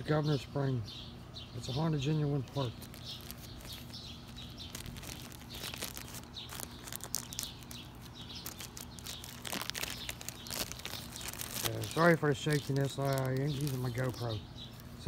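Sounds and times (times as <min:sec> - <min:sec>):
plastic bag crinkling: 0:02.6 - 0:14.4.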